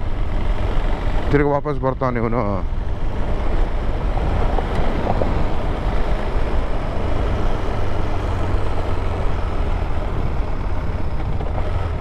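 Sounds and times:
motorcycle engine: 0.0 - 12.0
wind rumble on microphone: 2.7 - 12.0.

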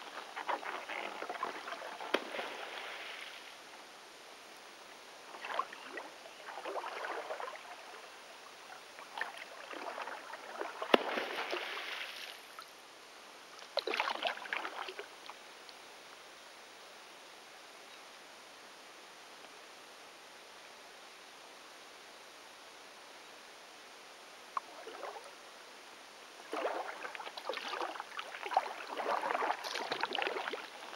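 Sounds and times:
paddle splashing and dripping water: 0.0 - 3.6, 5.3 - 8.1, 9.0 - 12.7, 13.6 - 15.4, 24.6 - 25.3, 26.4 - 30.9.

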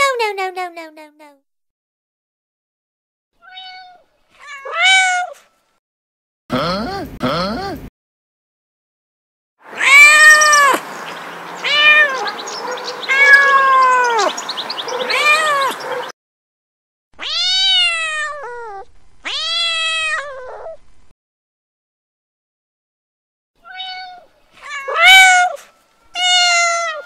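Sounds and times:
kittens meowing: 3.4 - 5.4, 9.7 - 10.8, 11.6 - 16.1, 17.2 - 20.8, 23.6 - 25.6, 26.2 - 27.0.

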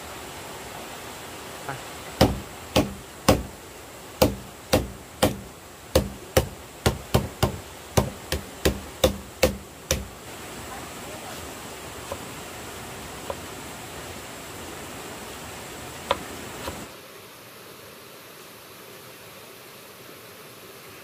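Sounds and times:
knife chopping on board: 2.2 - 3.5, 4.2 - 10.1.

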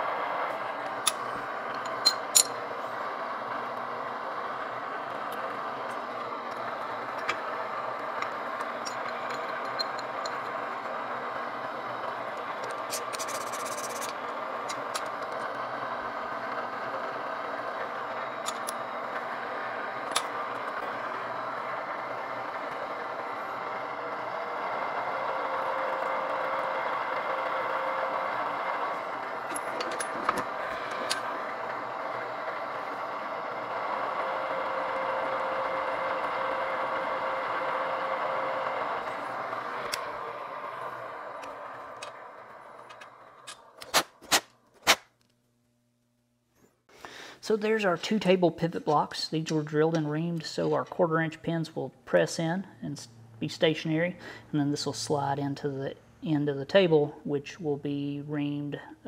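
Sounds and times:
drill press running: 0.0 - 44.7.

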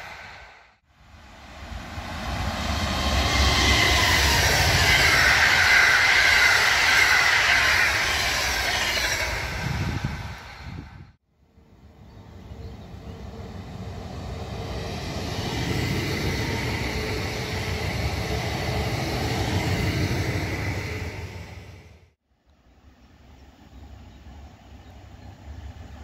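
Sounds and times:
train wheels running on rails: 1.2 - 11.1, 12.3 - 22.0.

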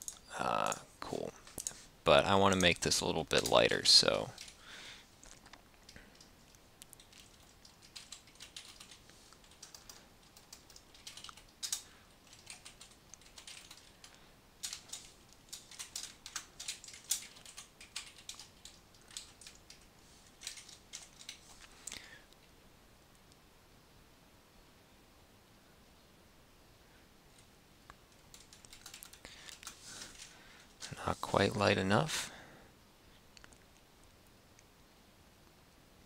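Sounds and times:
typing on computer keyboard: 4.2 - 4.6, 7.0 - 21.4, 28.1 - 30.3.

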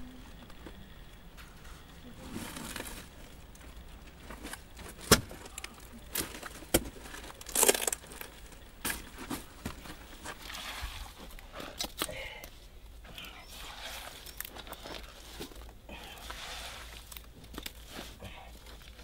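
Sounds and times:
charcoal lumps clinking: 1.2 - 12.4.

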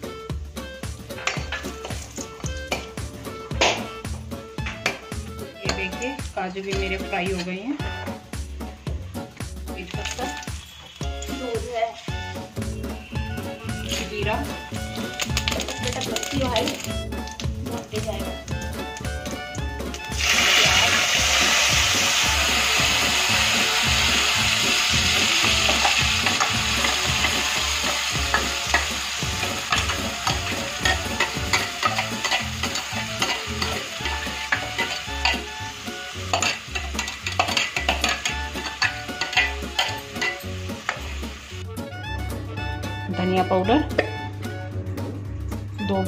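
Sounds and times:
paste sizzling in hot oil: 9.8 - 41.6
metal spoon scraping a pan: 23.5 - 41.4.

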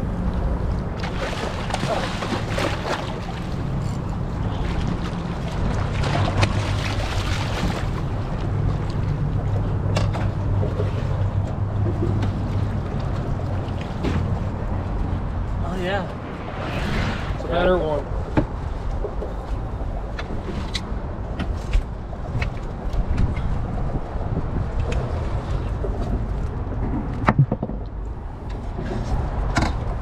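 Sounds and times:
water splashing: 0.9 - 9.1
fish thrashing at water surface: 1.0 - 3.3
low rumble: 3.5 - 20.1.

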